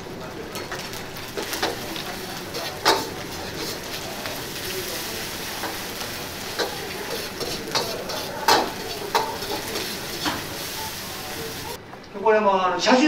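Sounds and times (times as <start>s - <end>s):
food sizzling in oil: 0.0s - 11.8s
metal ladle scraping wok: 2.4s - 4.6s, 5.5s - 11.7s
ladle clinking against wok: 2.5s - 3.9s, 6.5s - 10.7s.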